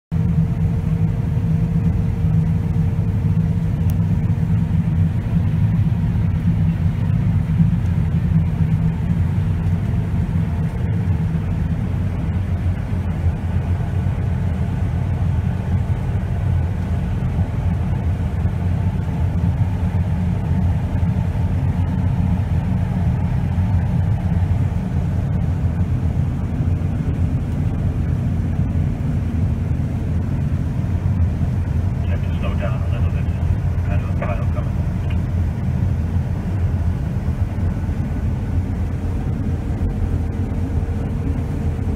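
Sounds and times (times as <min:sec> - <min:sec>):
combine harvester rumbling: 0:00.1 - 0:41.9
faint machinery whine: 0:00.1 - 0:41.9.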